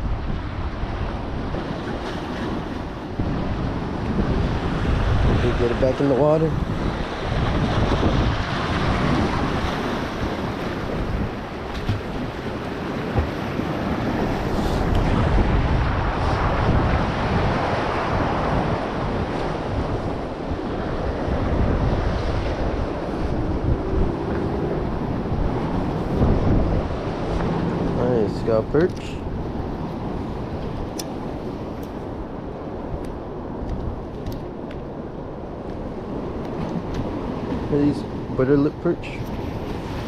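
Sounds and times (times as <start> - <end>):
surf splashing against rocks: 0.0 - 32.8, 35.5 - 40.0
wind buffeting microphone: 0.0 - 40.0.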